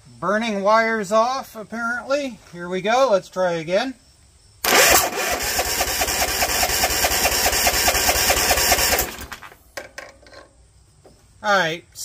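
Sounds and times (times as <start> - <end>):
engine cranking by starter: 4.6 - 9.6.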